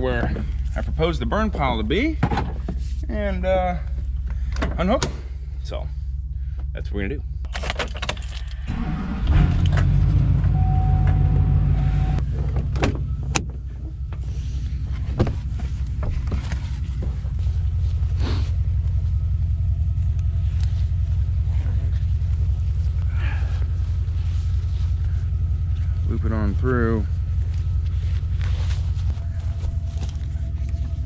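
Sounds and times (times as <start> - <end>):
truck engine starting and idling: 7.3 - 31.0
clunks: 7.4 - 17.4.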